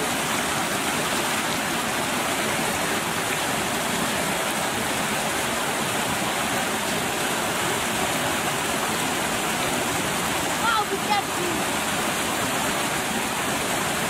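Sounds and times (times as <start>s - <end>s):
water pouring into a pool: 0.0s - 14.0s.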